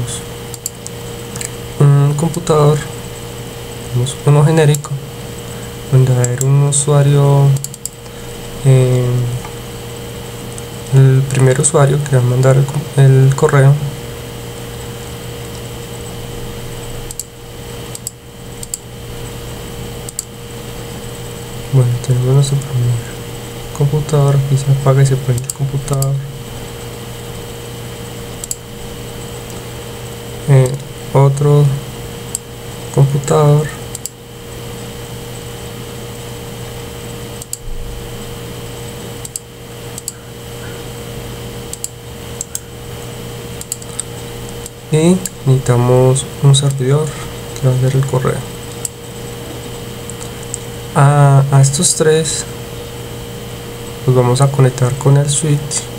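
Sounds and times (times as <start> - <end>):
hum and fan-like hiss: 0.0 - 55.9
computer mouse clicks: 0.5 - 1.6, 7.6 - 8.2, 17.1 - 17.3, 17.9 - 18.8, 20.0 - 20.3, 25.3 - 26.1, 28.4 - 28.6, 33.9 - 34.2, 37.4 - 37.6, 39.2 - 40.2, 41.7 - 42.6, 43.6 - 45.4
mouse clicks: 17.1 - 17.3, 17.9 - 18.8, 20.1 - 20.3, 39.2 - 40.2, 43.6 - 45.4.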